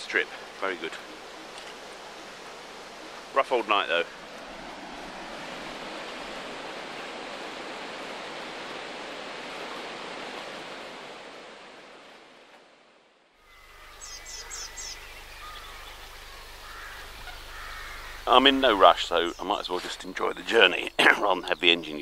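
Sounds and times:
birds calling: 0.0 - 10.0, 13.4 - 22.0
water rushing over weir: 0.0 - 12.4.

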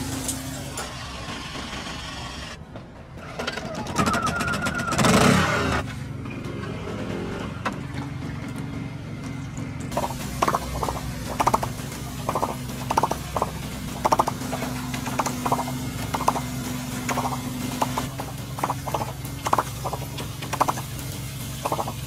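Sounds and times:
steady low hum: 9.9 - 22.0.

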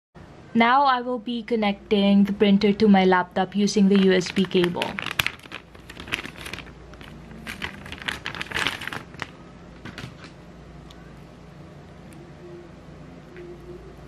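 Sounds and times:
plastic bag crinkling: 3.7 - 10.3.

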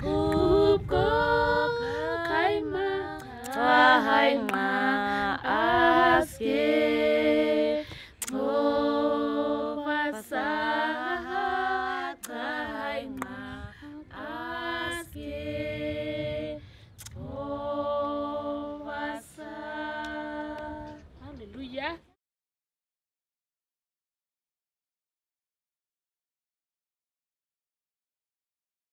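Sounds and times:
women singing unaccompanied: 0.0 - 21.8.

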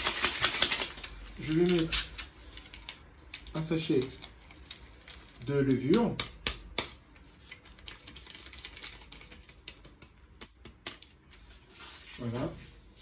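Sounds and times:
paper sachet crinkling: 0.0 - 6.1, 7.2 - 10.0.

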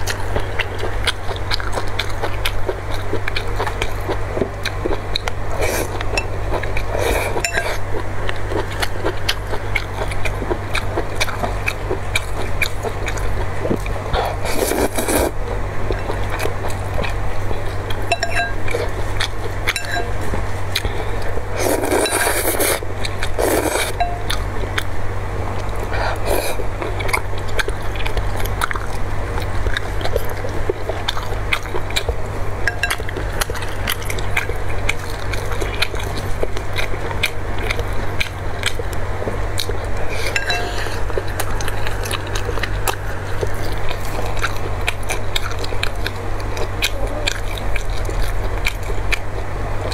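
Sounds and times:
steady low hum: 0.0 - 49.9
slurping noodles: 5.5 - 6.0, 14.1 - 15.4, 21.5 - 24.0
chopsticks clicking on glass: 32.7 - 33.0.

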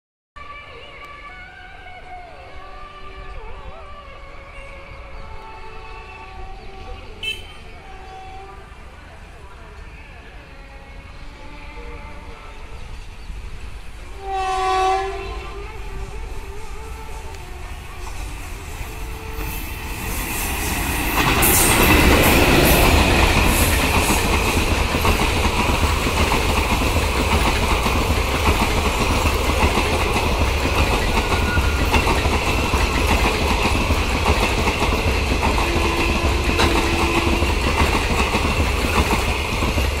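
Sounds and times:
train rumble: 0.6 - 40.0.

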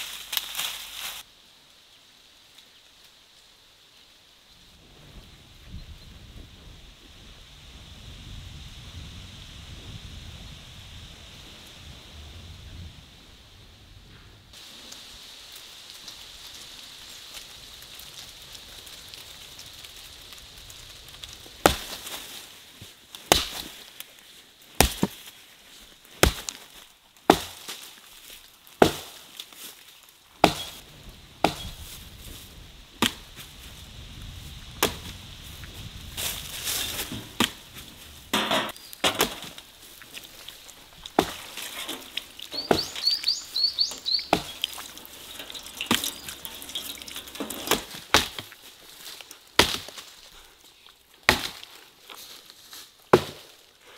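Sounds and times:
wood cracking: 17.3 - 30.8, 36.1 - 53.7
water splashing and trickling: 38.9 - 50.2.

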